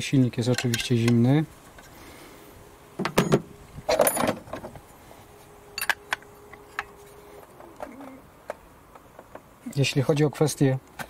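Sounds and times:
wrench clinking on metal pipes: 5.8 - 6.2.

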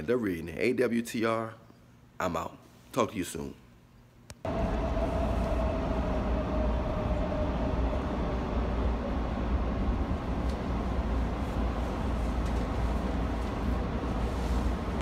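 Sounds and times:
low rumble: 4.5 - 15.0.

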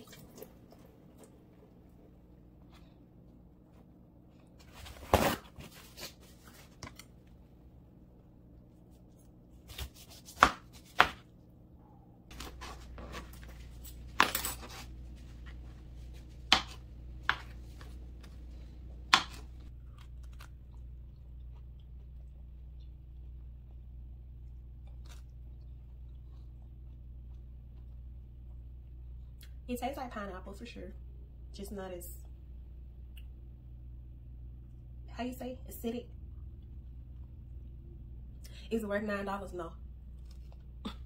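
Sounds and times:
low steady hum: 0.0 - 41.0
knife chopping on plastic board: 9.7 - 11.2, 16.5 - 17.6, 19.1 - 19.4.

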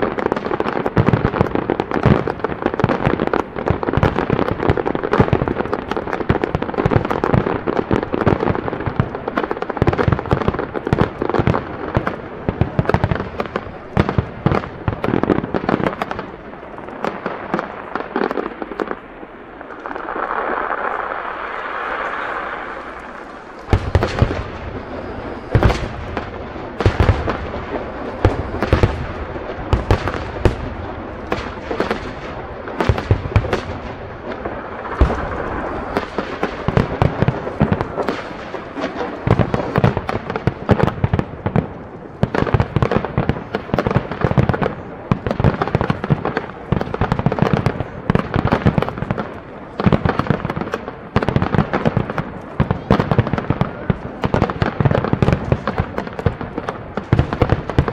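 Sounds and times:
fireworks bursting: 0.0 - 57.9
heavy fireworks booms: 0.0 - 57.9
steady hiss: 18.5 - 40.3.

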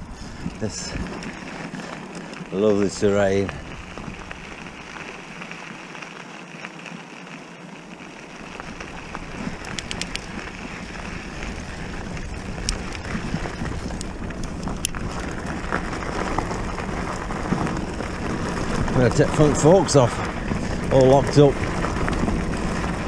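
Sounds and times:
bike tyres rolling on gravel: 0.0 - 23.0
stones snapping under tyres: 8.0 - 23.0
wind on microphone: 8.7 - 23.0.

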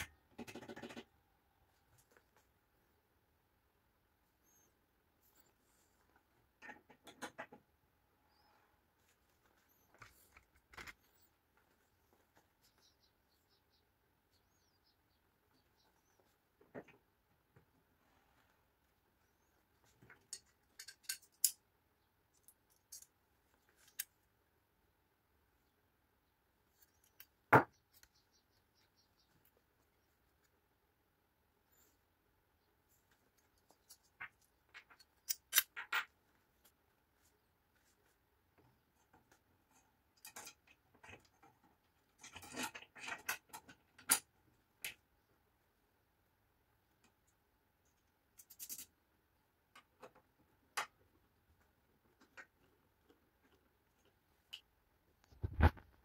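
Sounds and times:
metal parts clinking and scraping: 20.2 - 21.6, 22.3 - 23.1, 33.9 - 36.1, 48.4 - 48.9.

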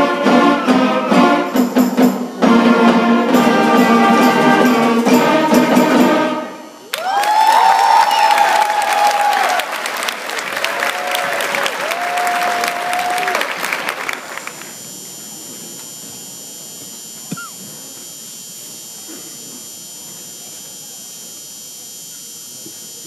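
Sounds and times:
faint high whine: 0.0 - 23.0
crowd whooping: 6.8 - 14.8
audience applauding: 6.9 - 14.7
faint murmur: 14.5 - 23.0.

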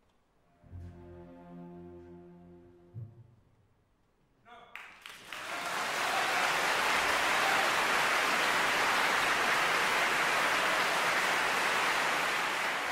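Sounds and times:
audience applauding: 4.7 - 12.9.

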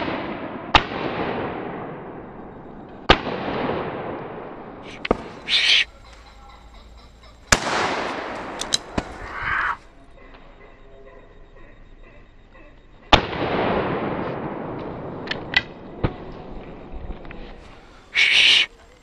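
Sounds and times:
sharp clicks: 4.8 - 10.6
shotgun shots echoing: 7.5 - 9.3.

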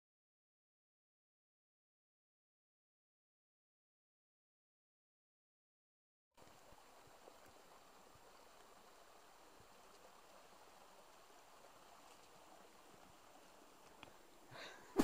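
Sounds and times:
stream running over rocks: 6.4 - 15.0.

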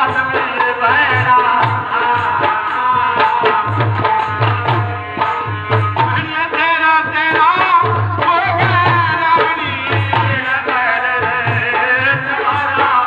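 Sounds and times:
hand drum beating: 1.1 - 10.4.

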